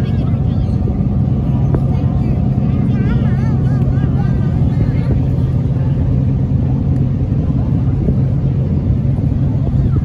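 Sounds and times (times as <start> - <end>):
boat engine rumbling: 0.0 - 10.0.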